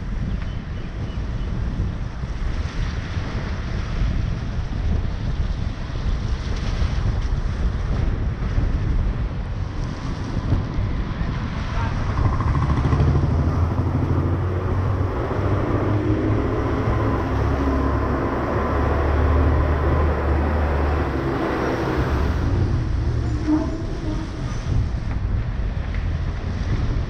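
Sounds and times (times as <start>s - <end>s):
vehicle driving on wet road: 2.4s - 27.0s
truck passing close: 11.9s - 25.2s.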